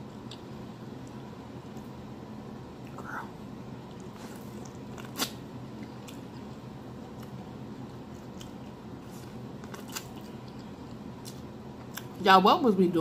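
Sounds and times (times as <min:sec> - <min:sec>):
low steady hum: 0:00.0 - 0:13.0
teeth crunching corn kernels: 0:07.1 - 0:12.2.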